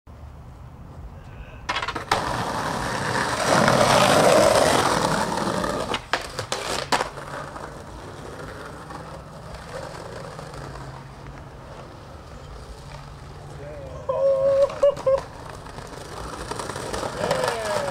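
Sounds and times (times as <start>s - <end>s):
skateboard wheels rolling: 0.4s - 17.9s
skateboard landing clacks: 1.7s - 2.5s, 5.7s - 7.4s
skateboard grinding on stone: 1.7s - 13.2s, 14.4s - 17.9s.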